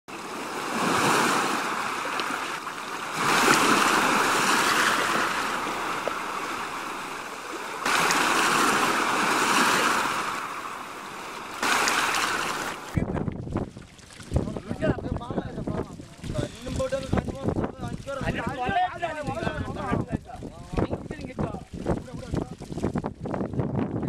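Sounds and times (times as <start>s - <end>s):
sea surf washing in: 0.1s - 13.0s.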